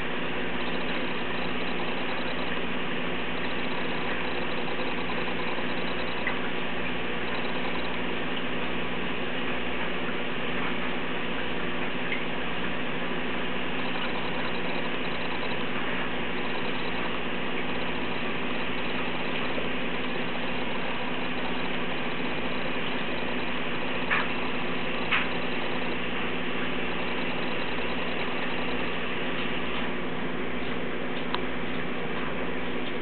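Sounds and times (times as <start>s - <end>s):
aquarium pump humming: 0.0s - 33.0s.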